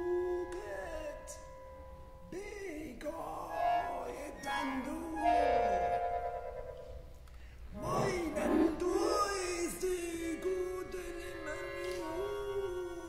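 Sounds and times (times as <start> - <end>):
clarinet: 3.4 - 13.0
accordion: 3.5 - 13.0
cello: 7.7 - 9.7
violin: 7.7 - 13.0
wordless sliding vocals: 7.7 - 13.0.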